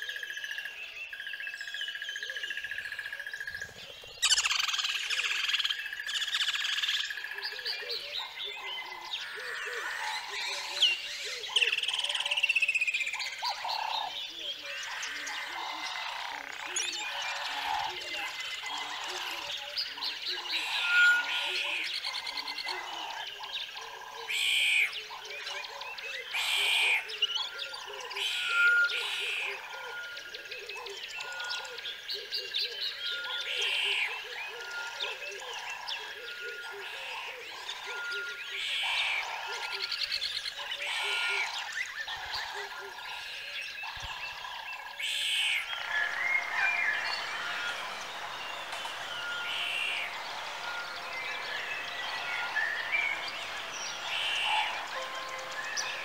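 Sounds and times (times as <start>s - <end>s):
scattered chirps: 45.5s - 56.0s
steady high drone: 45.6s - 56.0s.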